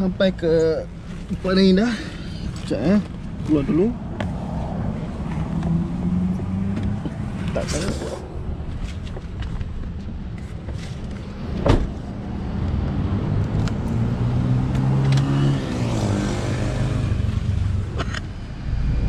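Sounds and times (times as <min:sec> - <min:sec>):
car door slamming: 0:11.6 - 0:12.0.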